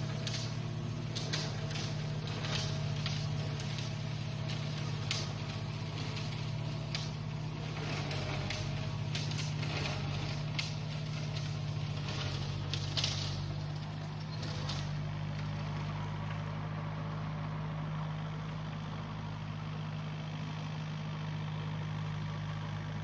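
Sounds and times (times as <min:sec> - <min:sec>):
tractor diesel engine running: 0:00.0 - 0:23.0
short sharp crackles and ticks: 0:00.1 - 0:07.2.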